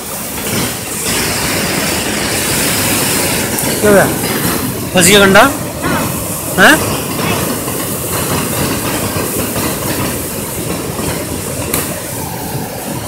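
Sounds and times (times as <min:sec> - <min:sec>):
river water rushing: 0:00.0 - 0:07.5.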